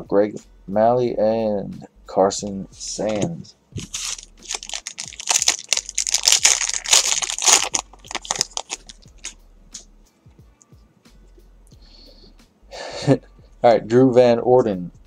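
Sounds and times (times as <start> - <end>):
foil wrapper crinkling and tearing: 3.1 - 9.4.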